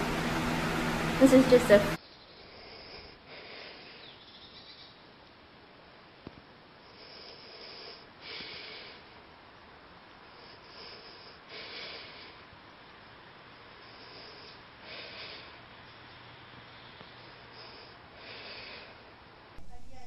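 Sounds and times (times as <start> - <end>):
soft breathy hiss puffs: 6.2 - 19.2.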